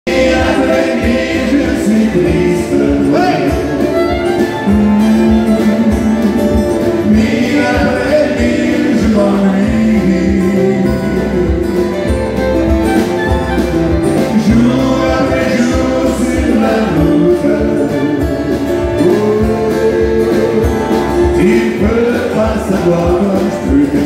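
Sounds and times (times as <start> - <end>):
man singing: 0.1 - 3.8, 7.0 - 11.9, 14.2 - 24.0
fiddle: 0.1 - 9.2, 10.0 - 23.8
strummed acoustic guitars: 0.1 - 24.0.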